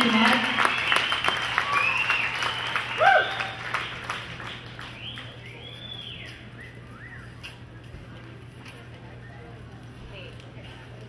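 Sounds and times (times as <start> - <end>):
crowd clapping and cheering: 0.0 - 6.9
whistles: 0.6 - 3.9, 4.8 - 7.6.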